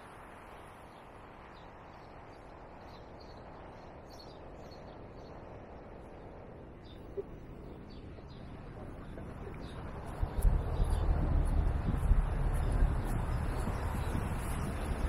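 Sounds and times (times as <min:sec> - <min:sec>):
street noise: 0:08.2 - 0:15.0.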